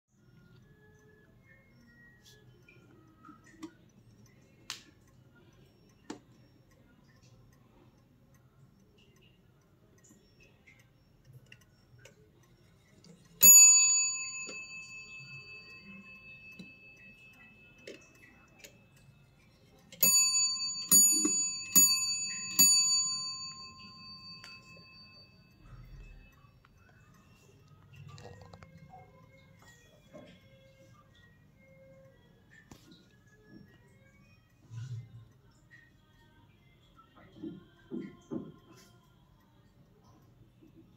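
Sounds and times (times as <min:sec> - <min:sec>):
mantel clock striking: 0:13.4 - 0:18.0, 0:19.9 - 0:26.4.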